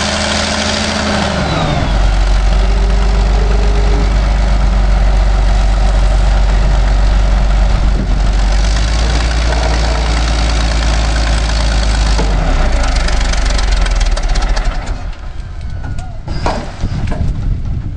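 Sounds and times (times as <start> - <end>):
diesel engine running hard: 0.0 - 15.6.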